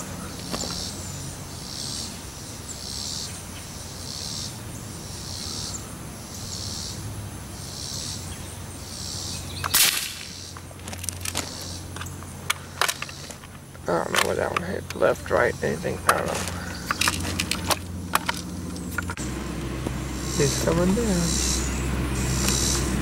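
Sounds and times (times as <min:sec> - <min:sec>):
pellet gun shot: 0:09.7 - 0:10.3
high-pitched pulsing call: 0:19.3 - 0:23.0.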